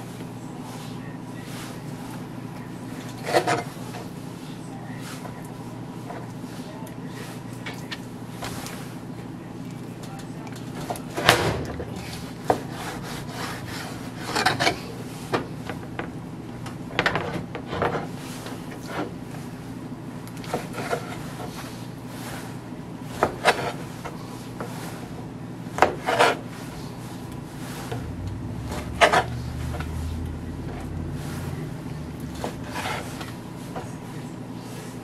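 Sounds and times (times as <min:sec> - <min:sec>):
soft knife scraping: 0:26.0 - 0:28.1, 0:28.7 - 0:33.9.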